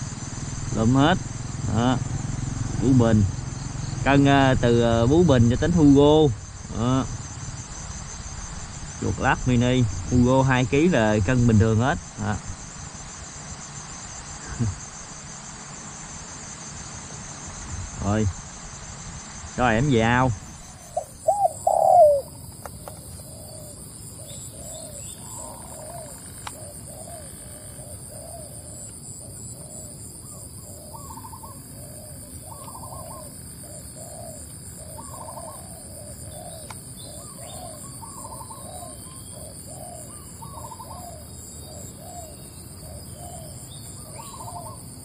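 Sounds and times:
doves cooing: 0.0 - 12.6, 19.6 - 45.0
steady high buzz: 0.0 - 45.0.

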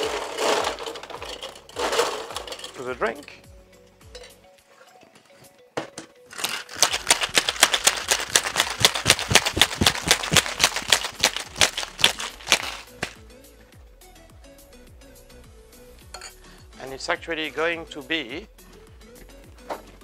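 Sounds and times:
ice rattling in cocktail shaker: 0.0 - 3.0, 6.3 - 13.2.

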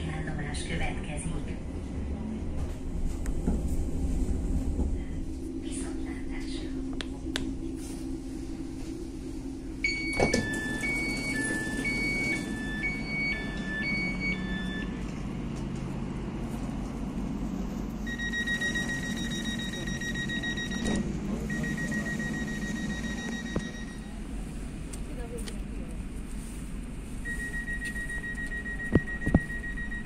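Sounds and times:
steady warning tone: 3.7 - 15.0, 18.0 - 24.2
two-tone door chime: 9.8 - 15.0, 18.1 - 24.1.

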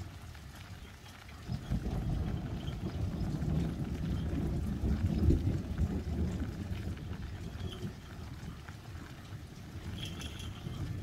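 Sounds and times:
faint hiss of rain: 0.0 - 11.0
thunder rumbling low: 1.4 - 8.7.

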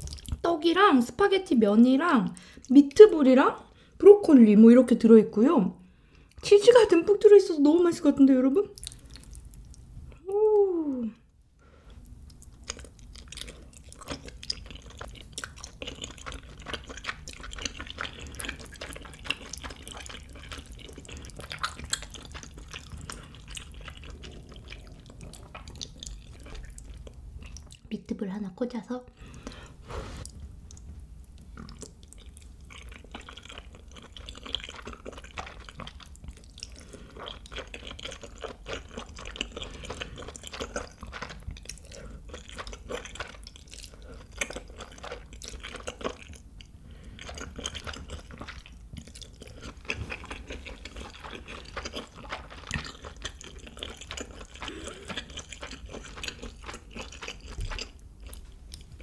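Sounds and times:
wet chewing and smacking: 0.0 - 0.4, 8.7 - 10.2, 11.9 - 27.9, 30.2 - 59.0.

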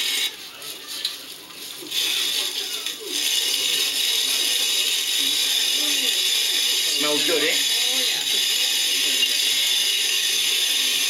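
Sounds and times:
hand mill grinding coffee beans: 0.0 - 11.0.

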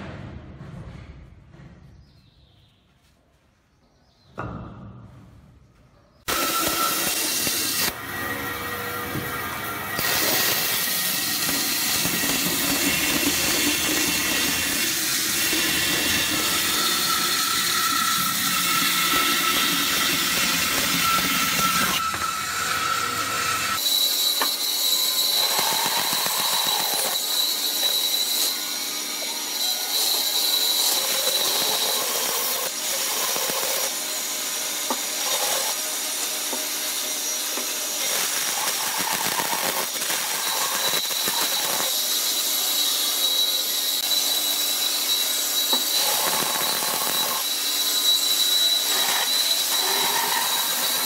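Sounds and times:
knock: 4.3 - 5.4
band saw cutting wood: 6.3 - 51.0.

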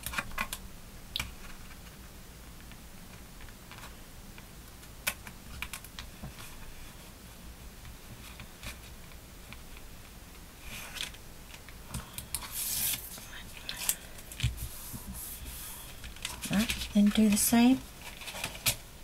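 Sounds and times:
card rustling: 12.0 - 18.8
paper scrape: 12.4 - 13.2.

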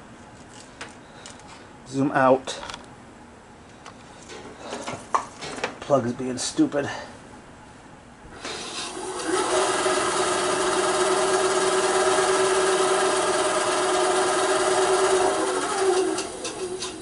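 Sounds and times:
band saw motor starting up: 8.4 - 17.0.

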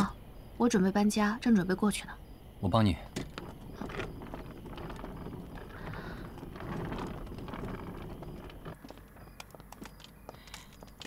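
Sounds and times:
suitcase wheels rattling over pavement: 3.0 - 11.0
footsteps: 3.1 - 11.0.

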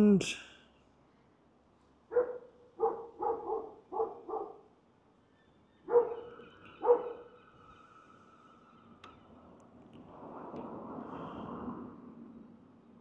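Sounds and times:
dog barking: 2.1 - 4.7, 5.9 - 7.3.

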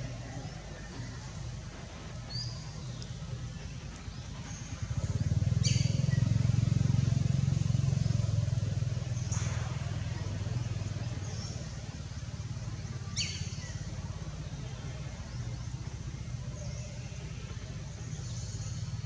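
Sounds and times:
passing vehicle motor rumble: 0.0 - 19.0.

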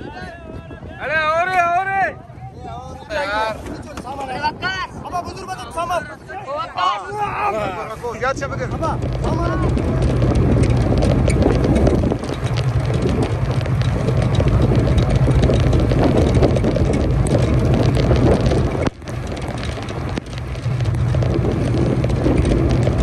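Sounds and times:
strong wind buffeting microphone: 0.0 - 23.0
steady low drone: 7.5 - 23.0
rain: 8.5 - 23.0.

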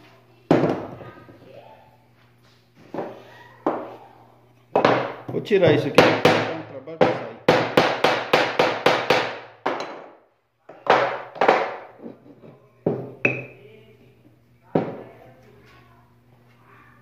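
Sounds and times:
wooden blocks knocking: 4.8 - 5.4, 6.0 - 12.0
hammer striking wooden block: 6.0 - 10.2.

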